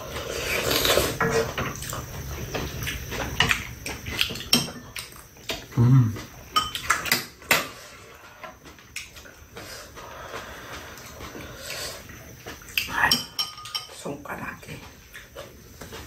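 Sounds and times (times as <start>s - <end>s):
metal utensils clinking on ceramic bowls: 4.5s - 4.9s, 6.6s - 7.6s, 12.8s - 14.4s.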